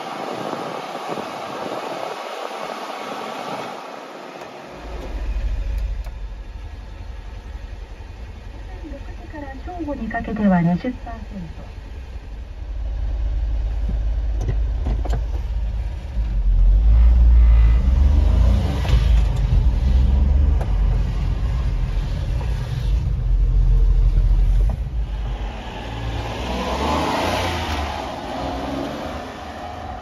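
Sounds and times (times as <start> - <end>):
small truck engine rumbling: 3.4 - 30.0.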